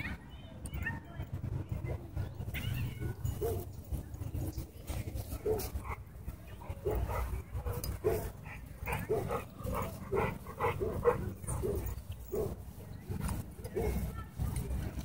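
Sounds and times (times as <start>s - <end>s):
dog barking and yipping: 5.4s - 6.0s, 6.8s - 12.6s.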